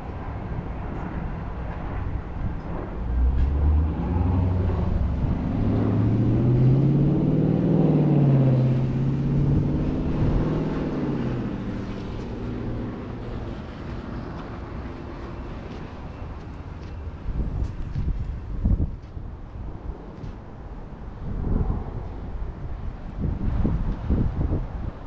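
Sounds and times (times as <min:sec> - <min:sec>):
vehicle driving past on wet street: 0:03.1 - 0:16.5.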